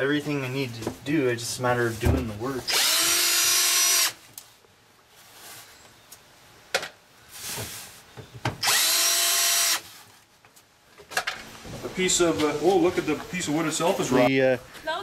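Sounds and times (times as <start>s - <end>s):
cordless drill whining: 2.7s - 4.2s, 8.6s - 9.8s.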